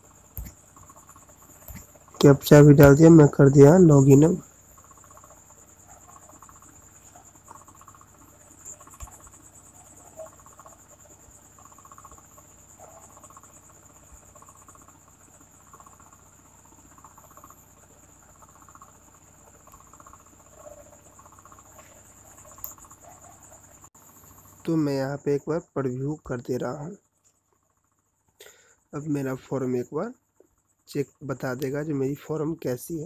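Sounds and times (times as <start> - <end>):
cricket trilling: 0.0 - 33.0
small clicks: 0.3 - 1.0, 21.7 - 23.2.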